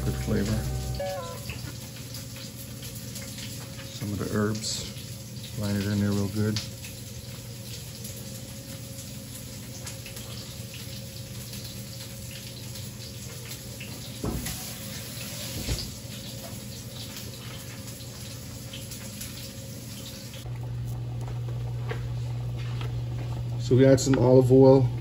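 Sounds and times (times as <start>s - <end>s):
low hum: 0.0s - 1.7s
tap running water: 0.0s - 25.0s.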